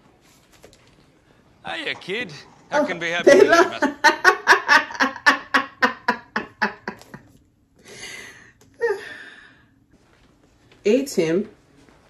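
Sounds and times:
woman laughing: 3.2 - 7.2.

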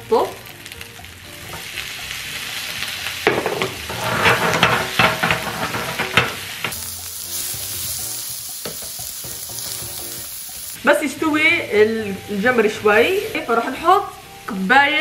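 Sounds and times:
food sizzling in a frying pan: 0.0 - 15.0
spatula scraping and tapping pan: 3.2 - 6.8, 8.6 - 10.2.

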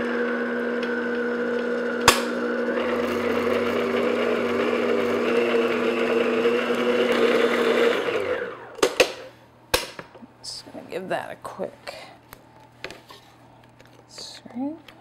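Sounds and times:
stand mixer motor humming: 0.0 - 8.8.

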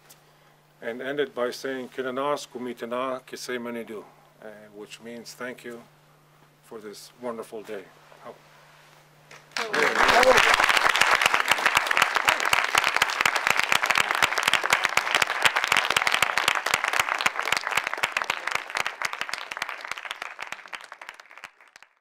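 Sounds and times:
audience applauding: 9.4 - 22.0.

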